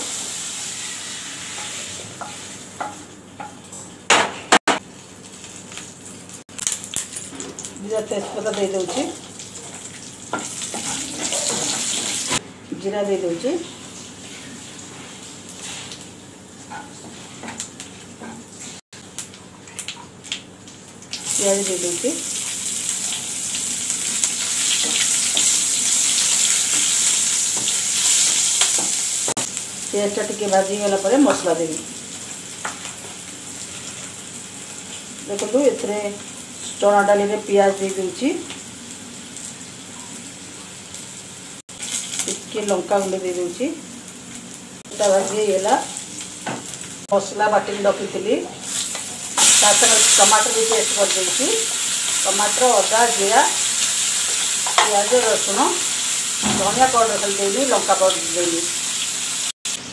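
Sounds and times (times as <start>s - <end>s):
oil sizzling: 0.0s - 12.4s, 13.1s - 59.9s
wooden spatula knocking on metal: 56.4s - 57.3s
cookware clanking: 56.4s - 57.4s.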